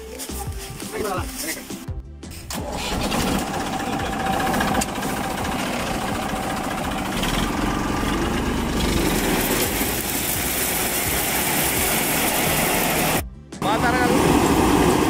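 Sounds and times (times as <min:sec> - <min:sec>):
tractor diesel engine idling: 0:02.4 - 0:15.0.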